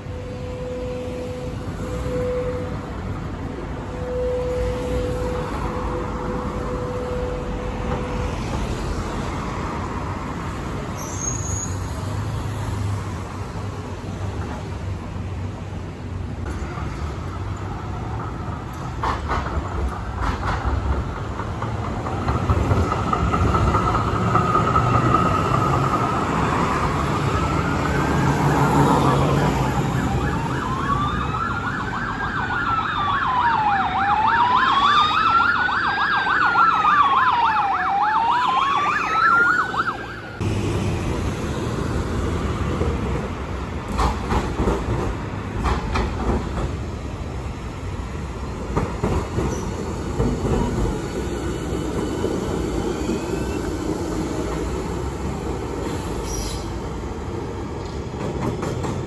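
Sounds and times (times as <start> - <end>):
city street traffic: 0.0 - 59.0
emergency vehicle siren wailing: 3.8 - 8.6, 24.6 - 40.5.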